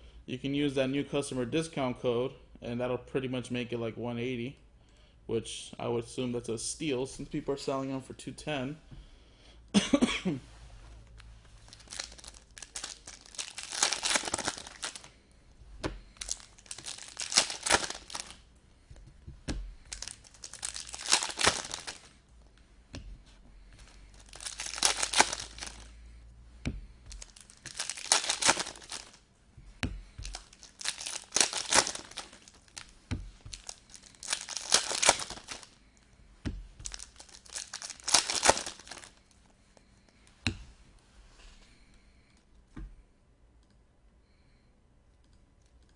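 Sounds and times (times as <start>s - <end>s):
foil wrappers tearing and crinkling: 11.7s - 15.1s, 16.2s - 18.4s, 19.9s - 22.1s, 24.2s - 25.9s, 27.1s - 29.2s, 30.2s - 32.9s, 33.5s - 35.7s, 36.8s - 39.2s.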